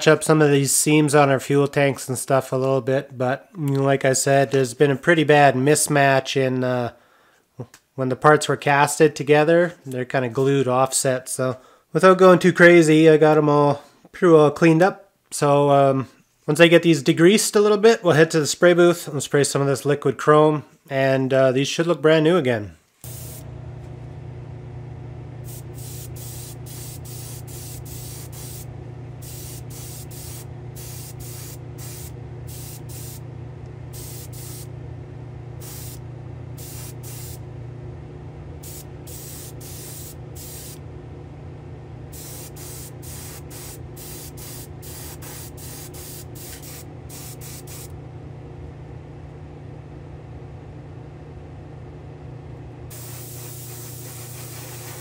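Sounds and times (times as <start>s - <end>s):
airbrush spraying hiss: 23.0s - 23.4s, 25.5s - 33.2s, 33.9s - 34.7s, 35.6s - 36.0s, 36.6s - 37.4s, 38.6s - 40.8s, 42.1s - 47.9s, 52.9s - 55.0s
steady low hum: 23.0s - 55.0s.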